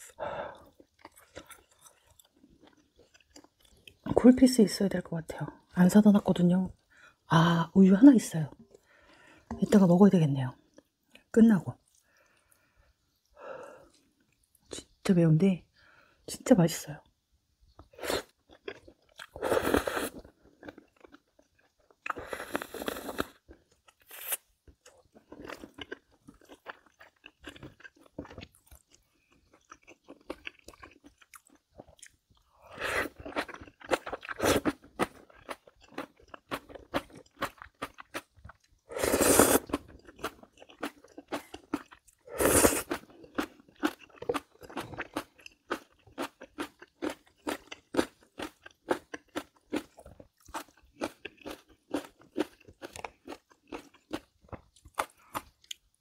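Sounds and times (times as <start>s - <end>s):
person chewing crunchy food: 0.0s - 4.2s, 17.7s - 56.0s.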